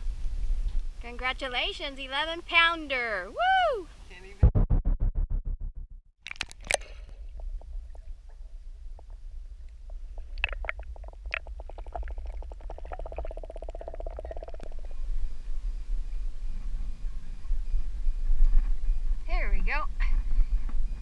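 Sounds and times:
fast rattling pulse: 0:04.4 - 0:15.1
low underwater rumble: 0:04.4 - 0:19.3.

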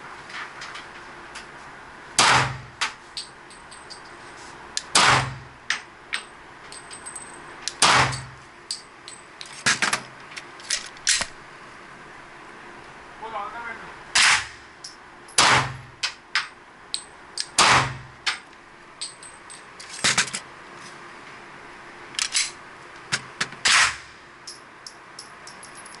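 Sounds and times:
pistol shots ringing: 0:15.4 - 0:15.8.

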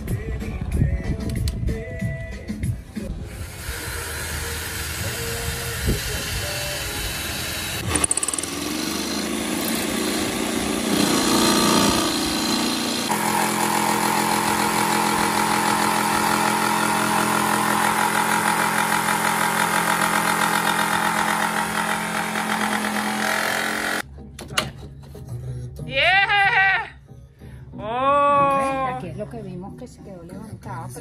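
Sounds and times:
jigsaw cutting: 0:03.3 - 0:24.0.

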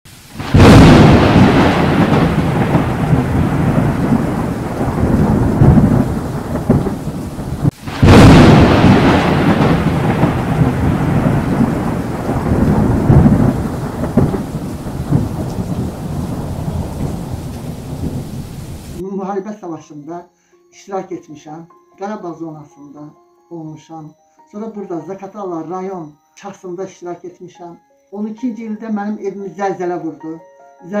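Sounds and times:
rain: 0:00.1 - 0:19.0
loud thunderclap: 0:00.3 - 0:19.0
thunder rumbling: 0:00.3 - 0:19.0.

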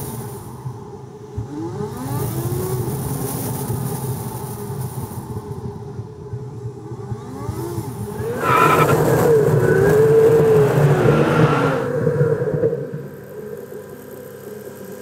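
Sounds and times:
car engine accelerating: 0:07.2 - 0:13.7
car road noise: 0:07.2 - 0:14.4.

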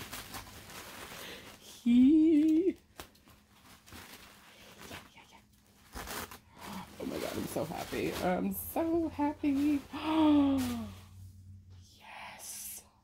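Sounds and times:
package wrapping crinkling: 0:00.0 - 0:11.0
woman's hummed squeal: 0:01.7 - 0:02.8.

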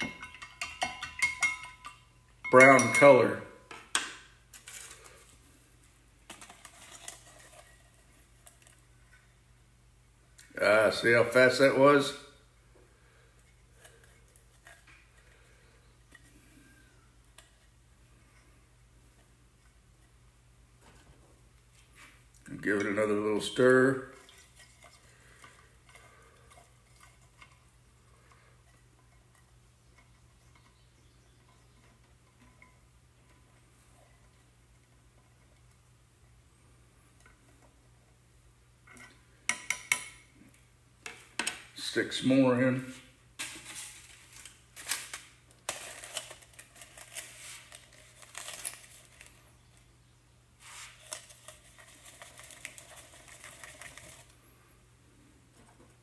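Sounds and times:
aluminium foil crinkling against glass: 0:04.5 - 0:05.4, 0:06.2 - 0:08.9, 0:43.4 - 0:49.8, 0:50.6 - 0:54.4.

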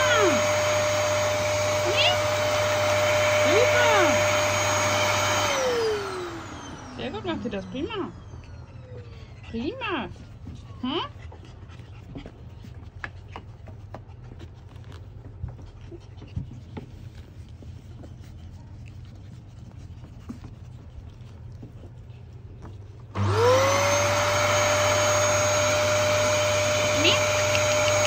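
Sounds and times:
vacuum cleaner running: 0:00.0 - 0:11.2, 0:23.0 - 0:28.0.

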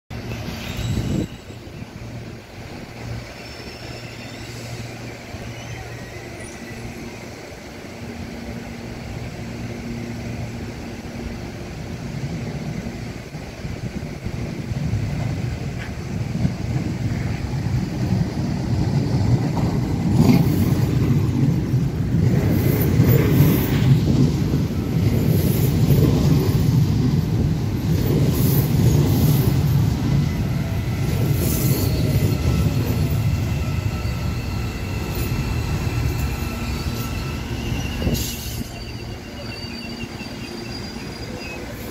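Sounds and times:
high brake squeals: 0:00.3 - 0:02.2, 0:03.0 - 0:07.4, 0:27.8 - 0:41.9
electric train running: 0:00.3 - 0:41.9.

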